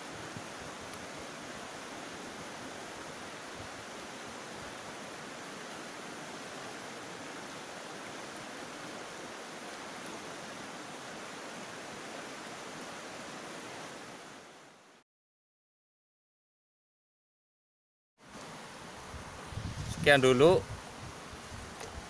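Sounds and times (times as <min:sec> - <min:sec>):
river rushing over rocks: 0:00.0 - 0:15.0.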